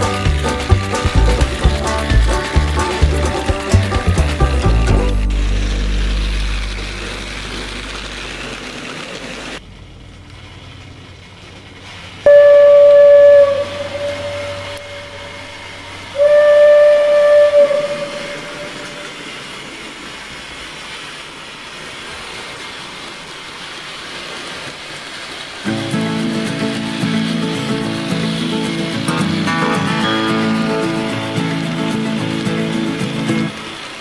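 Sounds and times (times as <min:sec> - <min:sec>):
steady background hiss: 0:00.0 - 0:34.0
steam locomotive whistle blasts: 0:12.3 - 0:19.4.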